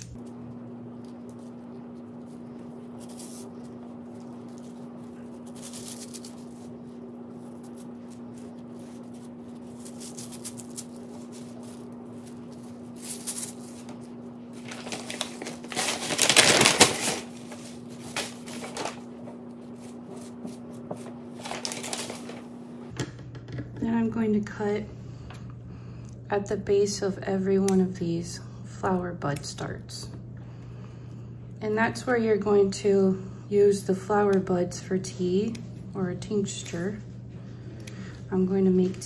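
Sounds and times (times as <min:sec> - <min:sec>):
paper crinkling: 0:00.0 - 0:22.6
steady low hum: 0:00.0 - 0:39.0
leaves rustling: 0:01.0 - 0:20.6, 0:21.3 - 0:22.6.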